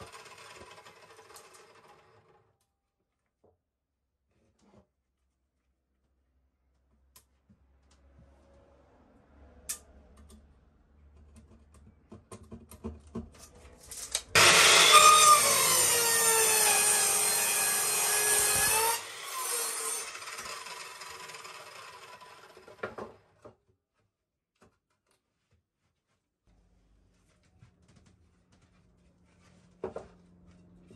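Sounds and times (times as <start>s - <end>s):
mitre saw cutting wood: 14.3s - 23.1s.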